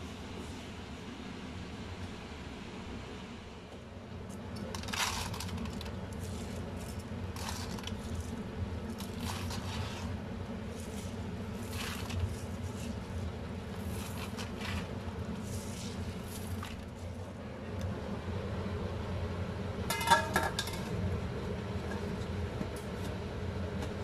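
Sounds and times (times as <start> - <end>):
steady low hum: 0.0 - 24.0
rice rustling and scraping: 4.7 - 17.3.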